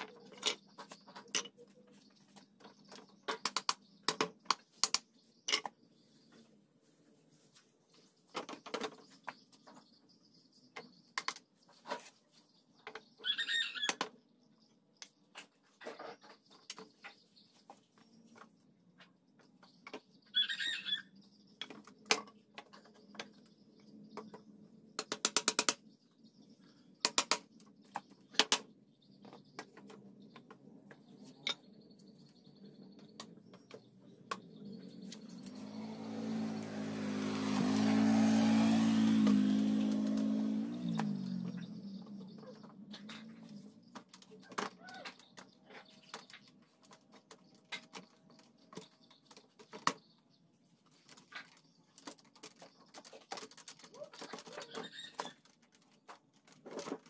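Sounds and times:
bird chirping: 0.0s - 57.0s.

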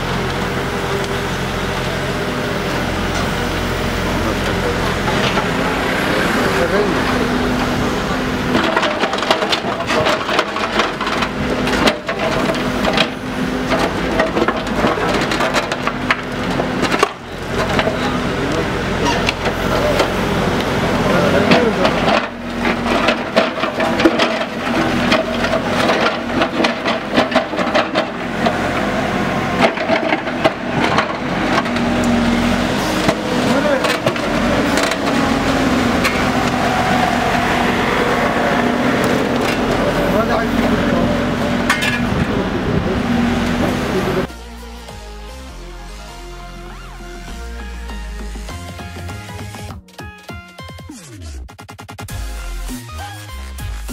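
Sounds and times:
excavator engine hum: 0.0s - 50.0s
excavator bucket scraping gravel: 3.0s - 46.5s.

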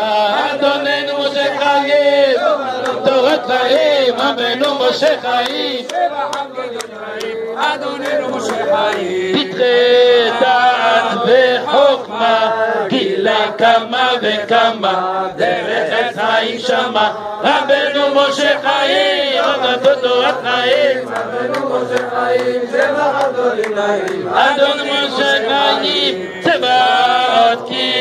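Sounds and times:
men singing in chorus: 0.0s - 28.0s.

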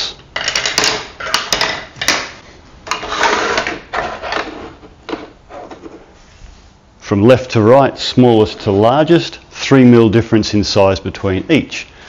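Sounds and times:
plastic plates clacking: 0.4s - 6.0s
plastic plates scraping on workbench: 2.9s - 6.0s.

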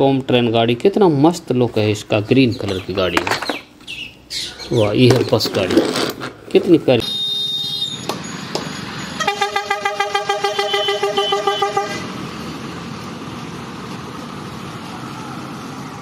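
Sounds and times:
road traffic noise: 0.0s - 16.0s
vehicle horn short toots: 7.0s - 8.1s, 9.2s - 12.1s
bus driving past: 7.6s - 16.0s.

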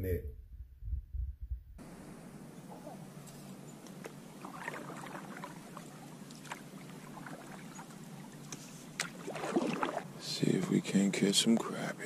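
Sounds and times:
paddling in water: 1.8s - 10.9s
water lapping around hull: 2.7s - 11.0s.

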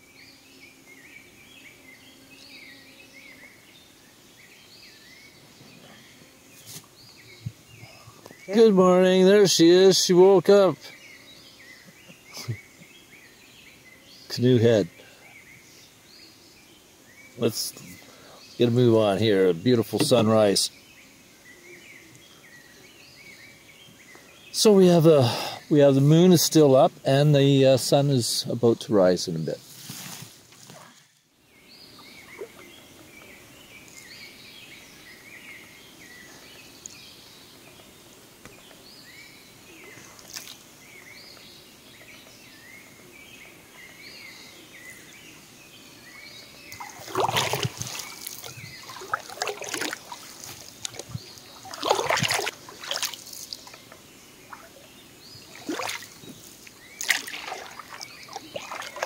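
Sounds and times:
small birds chirping: 0.0s - 59.0s
canoe paddle splashing in water: 46.8s - 54.8s, 55.4s - 59.0s.

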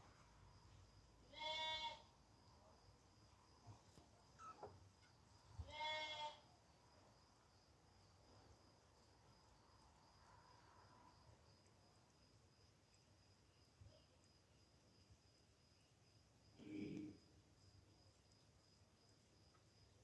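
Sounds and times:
faint falling squeak: 4.4s - 5.1s.

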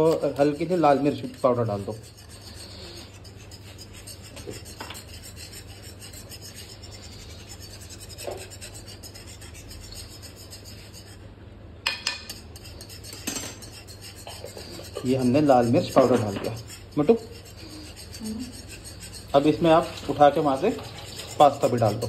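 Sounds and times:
whisk scraping metal pan: 0.0s - 11.3s, 11.9s - 22.0s
whisk clinking: 11.9s - 22.0s.

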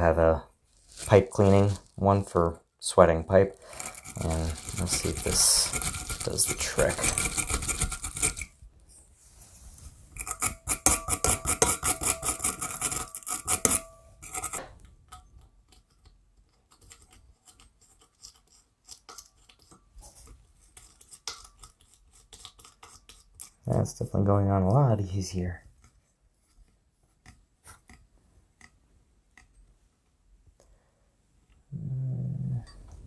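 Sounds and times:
wire brush scratching metal pipe: 0.0s - 2.4s, 3.0s - 8.6s, 9.7s - 14.8s, 16.7s - 23.8s.

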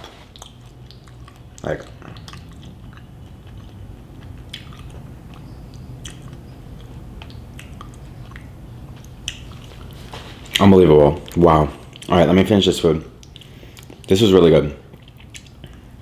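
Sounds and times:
person chewing food: 0.0s - 12.2s, 13.2s - 14.2s, 14.8s - 16.0s
low steady hum: 0.0s - 16.0s
wet mouth clicks and smacks: 0.3s - 10.7s, 13.2s - 14.1s, 14.9s - 15.9s.

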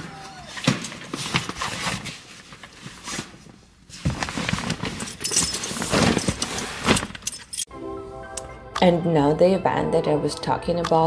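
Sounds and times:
fabric bags rustling: 0.6s - 7.6s.

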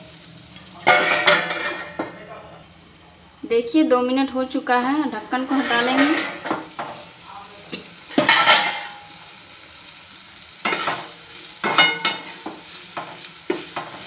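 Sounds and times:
chillies sizzling in oil: 0.0s - 14.0s
steel spatula scraping pan: 5.4s - 6.4s.

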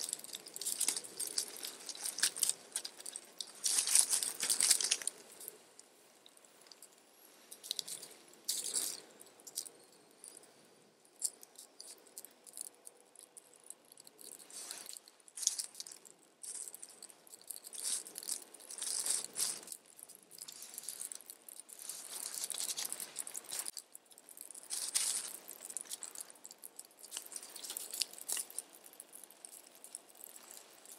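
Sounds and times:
dry sticks snapping: 0.0s - 5.5s
twig fire crackling: 0.0s - 30.9s.

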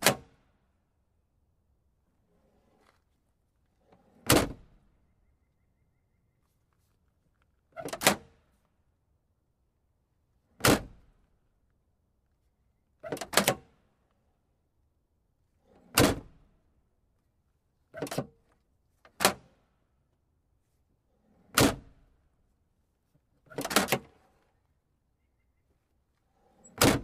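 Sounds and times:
latch or swing sound: 0.0s - 0.3s, 7.8s - 8.3s, 13.0s - 13.6s, 15.8s - 16.3s, 18.0s - 18.3s, 19.1s - 19.5s, 21.5s - 22.0s, 23.5s - 24.2s, 26.6s - 27.0s.

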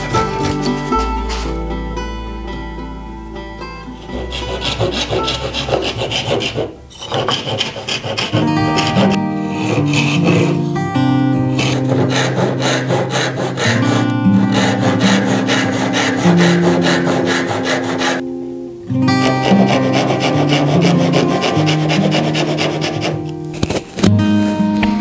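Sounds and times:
acoustic guitar music: 0.0s - 25.0s
backsaw rasping through wood: 4.0s - 10.6s, 11.5s - 18.2s, 19.2s - 23.3s.

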